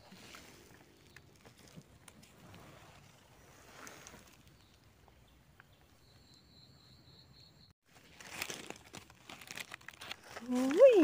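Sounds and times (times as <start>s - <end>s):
faint high pulsing chirp: 4.5s - 7.8s
dry leaves rustling and crackling: 7.8s - 11.0s.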